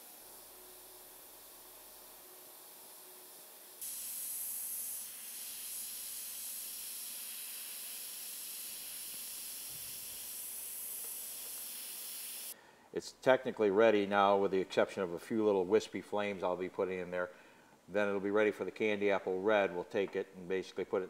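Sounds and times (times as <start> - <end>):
airbrush air hiss: 0.0 - 12.6.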